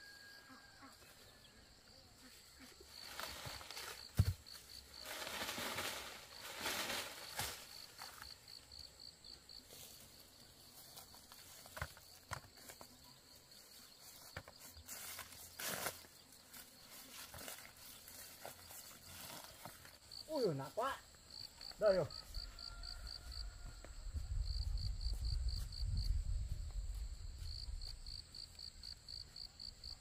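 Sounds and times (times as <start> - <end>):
insect chirping: 0.0 - 30.0
rustling and handling noises: 14.0 - 20.0.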